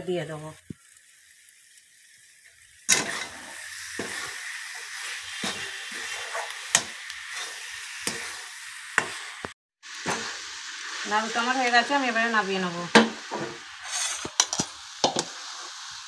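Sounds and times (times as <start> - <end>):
mixture sizzling in a metal pan: 0.0 - 16.0
metal spatula scraping a pan: 2.6 - 9.3, 13.3 - 15.7.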